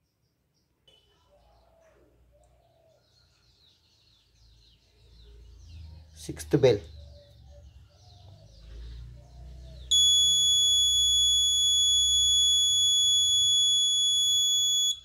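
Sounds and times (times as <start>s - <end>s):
piezo buzzer steady high tone: 9.9s - 15.0s.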